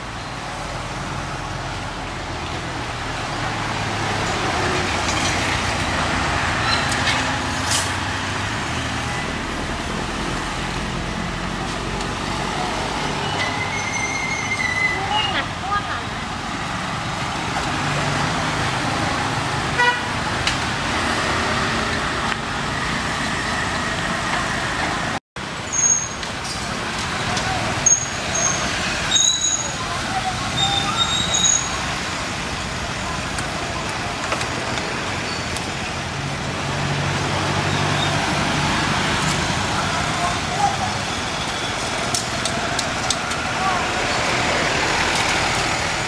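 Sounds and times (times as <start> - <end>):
street traffic: 0.0 - 46.0
vehicle horn toot: 19.8 - 20.1.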